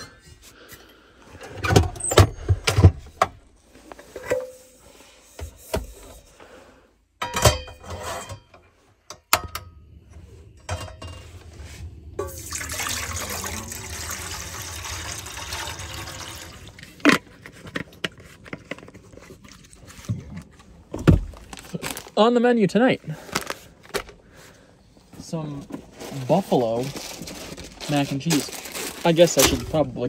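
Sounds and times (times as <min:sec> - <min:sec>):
water pouring into metal pot: 0:12.2 - 0:16.8.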